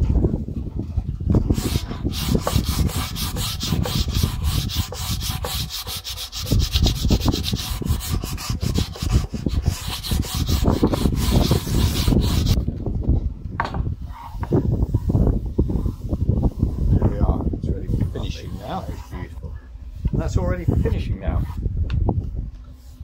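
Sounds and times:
sandpaper rubbing on wood: 0:01.4 - 0:12.6, 0:15.7 - 0:19.4, 0:20.2 - 0:21.6.

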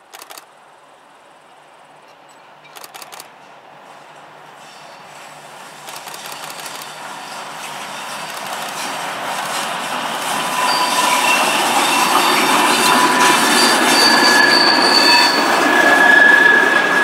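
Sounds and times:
train running gear rumbling: 0:00.0 - 0:17.0
train wheels squealing: 0:04.0 - 0:17.0.

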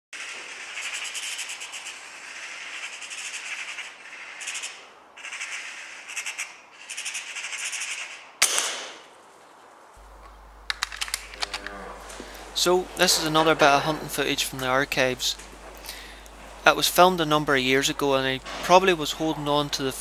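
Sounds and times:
magpie chattering: 0:00.2 - 0:08.4
gunshot: 0:08.4 - 0:09.0.

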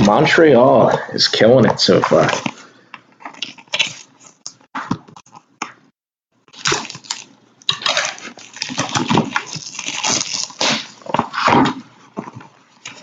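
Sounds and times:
plastic shrink-wrap crinkling: 0:06.5 - 0:11.1.

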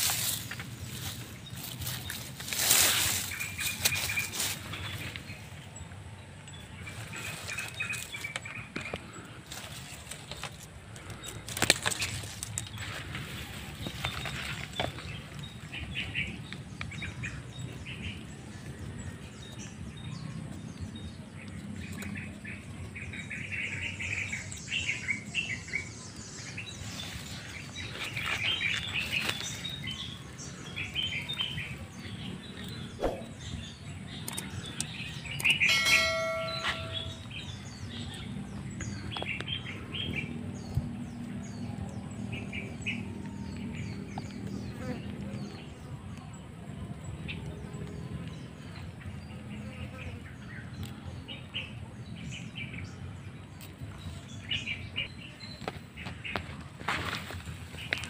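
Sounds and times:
birds chirping: 0:00.0 - 0:58.0
clear bird call: 0:32.8 - 0:33.6, 0:35.4 - 0:37.4.

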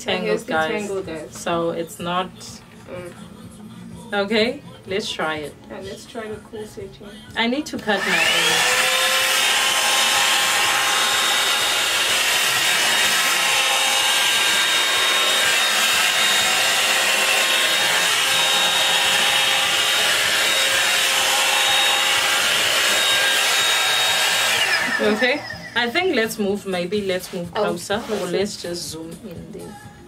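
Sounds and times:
hair dryer brush air and whine: 0:07.8 - 0:25.9, 0:27.0 - 0:28.6
brush drawn through hair: 0:27.2 - 0:28.5.

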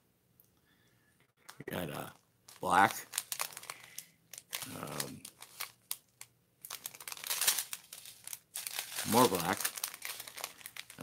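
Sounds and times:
plastic bags crinkling: 0:01.4 - 0:11.0.

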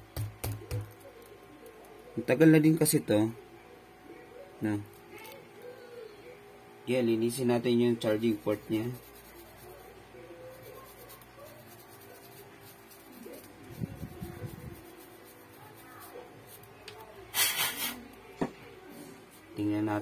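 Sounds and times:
short loud hiss: 0:17.3 - 0:18.0.

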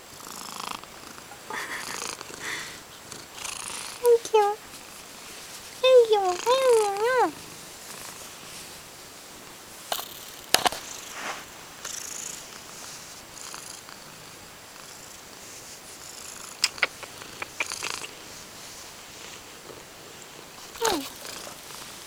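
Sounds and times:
cat purring: 0:00.0 - 0:22.0
fur rustling: 0:04.4 - 0:09.2
sharp clicks: 0:16.6 - 0:18.2.

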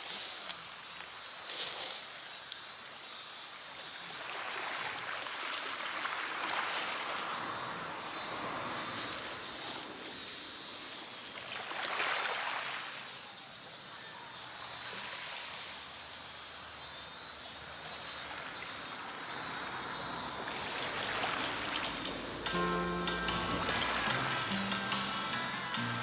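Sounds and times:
waves washing onto pebbles: 0:00.0 - 0:10.2, 0:11.4 - 0:13.0, 0:18.0 - 0:22.4.

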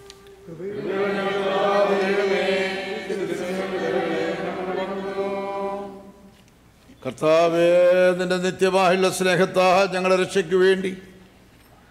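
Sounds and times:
choir chanting liturgical response: 0:00.5 - 0:06.4.

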